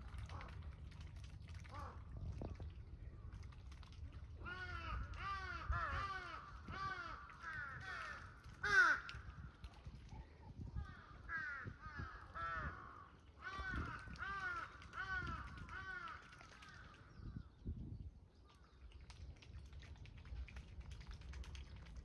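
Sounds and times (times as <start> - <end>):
crow cawing: 4.4 - 9.1, 11.3 - 16.2.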